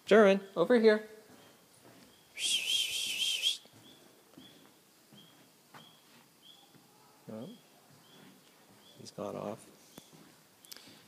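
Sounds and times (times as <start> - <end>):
faint high chirps: 1.4 - 9.2
person whistling a trilling note: 2.4 - 3.6.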